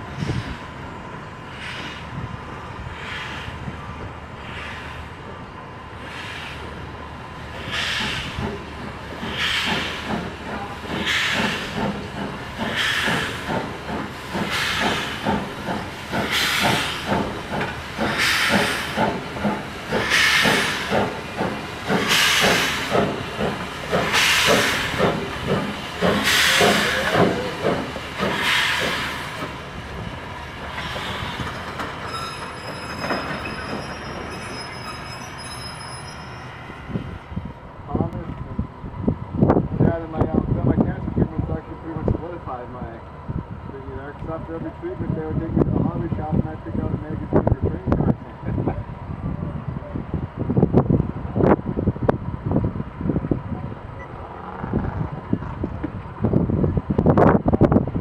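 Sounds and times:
steam locomotive chuffing: 7.5 - 37.3.

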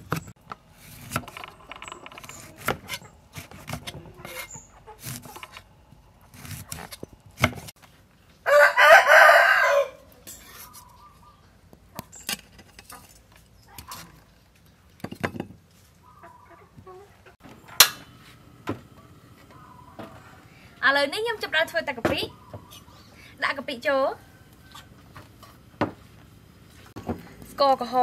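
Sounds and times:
knife on wooden chopping board: 2.2 - 5.6
rooster crowing: 8.4 - 10.1.

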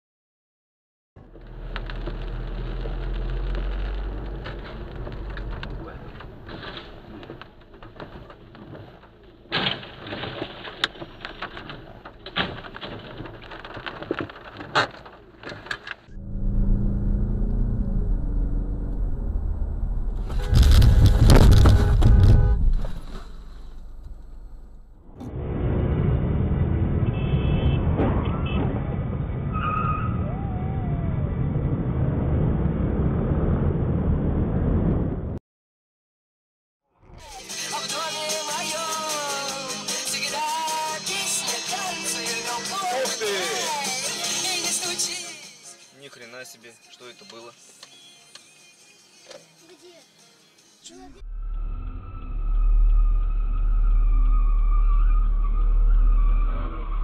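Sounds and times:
road traffic: 1.2 - 35.4
debris clattering and crackling: 1.3 - 16.1
van crashing: 4.3 - 15.8, 20.2 - 24.6.

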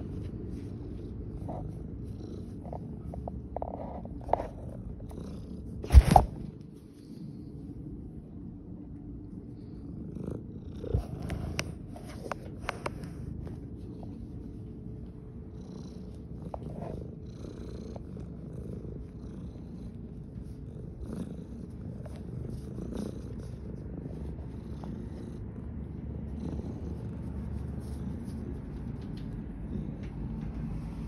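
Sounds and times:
cat purring: 0.0 - 31.0.

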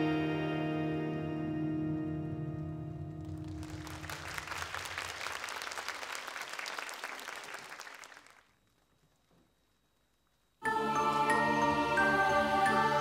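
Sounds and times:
audience applauding: 3.2 - 8.9
held music chord: 10.6 - 13.0.

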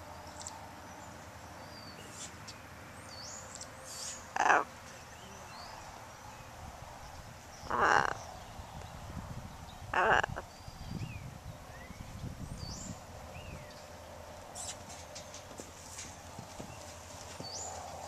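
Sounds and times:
small birds chirping: 0.2 - 18.0
macaw squawking: 3.9 - 4.7, 7.7 - 8.2, 10.0 - 10.4.

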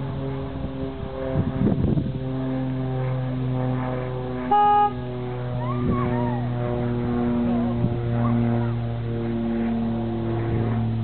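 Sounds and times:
low mechanical drone: 0.0 - 11.0
car horn beep: 4.5 - 5.0.

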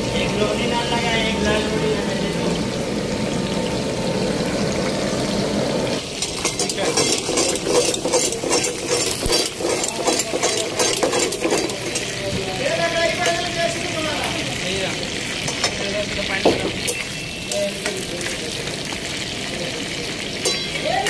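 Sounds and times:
meat sizzling in hot oil: 0.0 - 21.0
metal spatula scraping a pan: 6.1 - 12.2.

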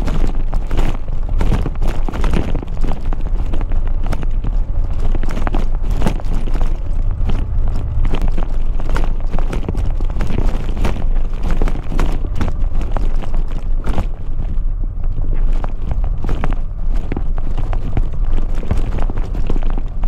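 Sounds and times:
motorcycle engine rumble: 0.0 - 20.0
stones clicking under tyres: 0.0 - 20.0.

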